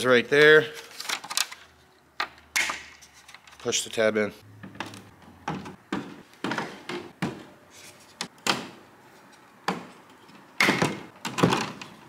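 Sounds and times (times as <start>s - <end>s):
plastic parts knocking and clicking: 4.6s - 7.5s, 9.6s - 12.0s.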